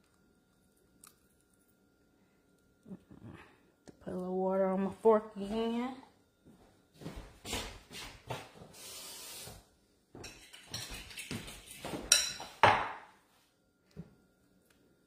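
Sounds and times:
fork and dishes clinking: 10.2 - 12.6.

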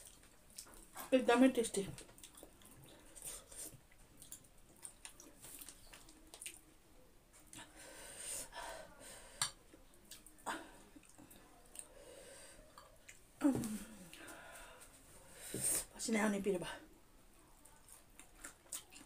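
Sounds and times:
chewing and lip smacks: 0.0 - 1.1, 2.0 - 7.6, 9.4 - 11.9, 12.7 - 13.3, 17.6 - 19.0.

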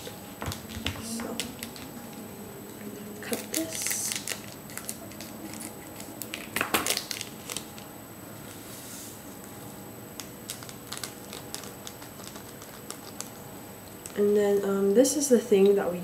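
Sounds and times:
sachet crinkling: 0.5 - 2.2, 3.2 - 7.9, 10.2 - 14.2
scissors snipping foil sachet: 3.2 - 7.8.

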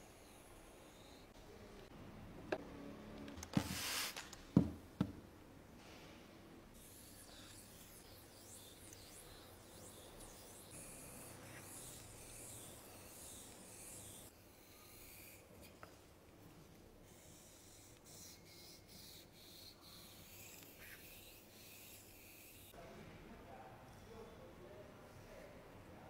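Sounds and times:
razor scraping on whetstone: 6.8 - 15.5, 17.1 - 22.8.

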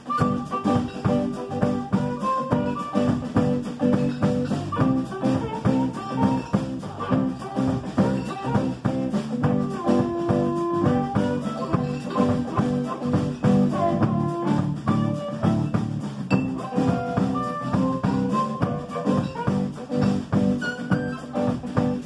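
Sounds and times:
amplified harmonica: 0.0 - 22.0
drum kit: 0.0 - 22.0
electric bass: 0.0 - 22.0
electric guitar: 0.0 - 22.0.

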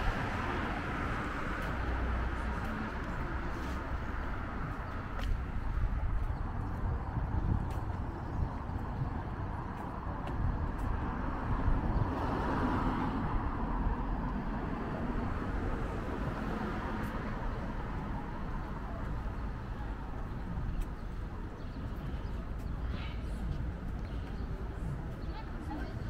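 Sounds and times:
road noise hum: 0.0 - 26.0
car passing: 11.0 - 19.7.

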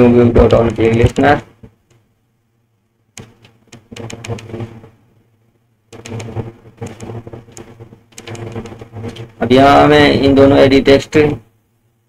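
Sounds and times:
steady low hum: 0.0 - 12.0
keyboard typing: 3.2 - 4.9, 5.9 - 9.4.

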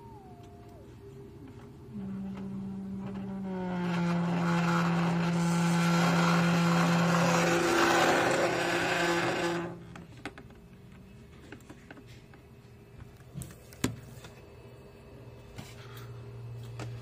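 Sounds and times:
low sine tone from subwoofer: 0.0 - 5.5.

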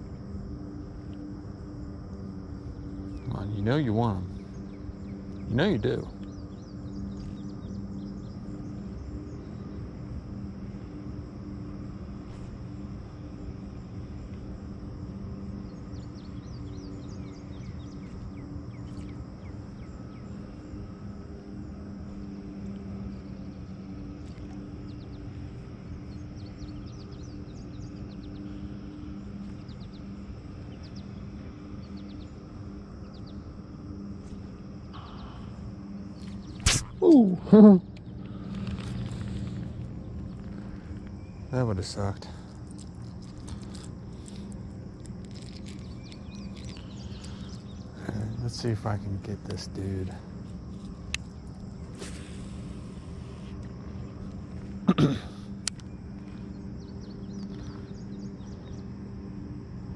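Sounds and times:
insects droning: 0.0 - 59.9
bird chirps: 45.2 - 48.6.

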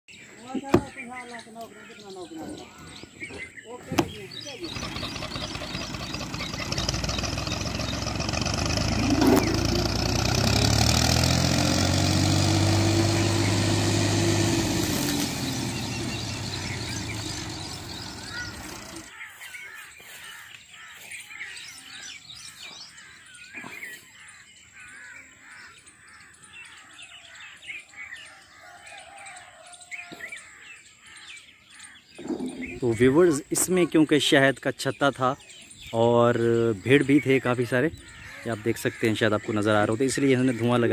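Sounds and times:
birds chirping: 0.1 - 40.9
tractor engine driving past: 4.3 - 19.1.

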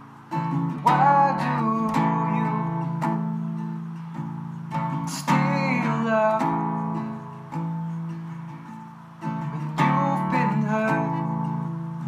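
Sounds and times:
acoustic guitar strumming: 0.0 - 12.0
man singing: 0.7 - 3.4, 5.0 - 7.4, 9.4 - 12.0.

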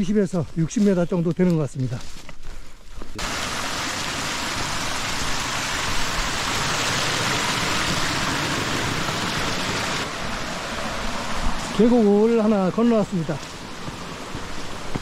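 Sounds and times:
stream rushing over boulders: 3.2 - 15.0.

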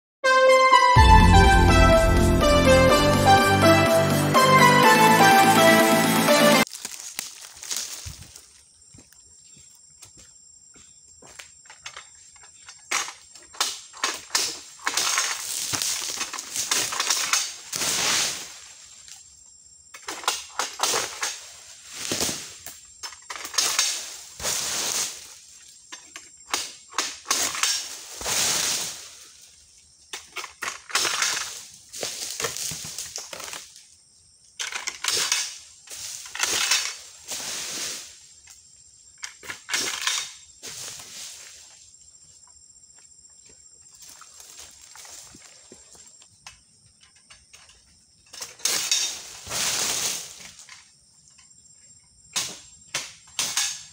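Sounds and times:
palm fronds cracking and tearing: 6.6 - 8.5, 13.6 - 18.8, 30.6 - 33.8.

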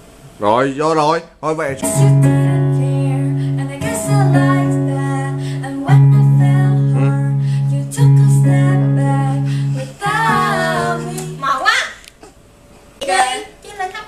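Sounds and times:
electronic keyboard chords: 1.8 - 11.6
women singing: 1.8 - 11.7.

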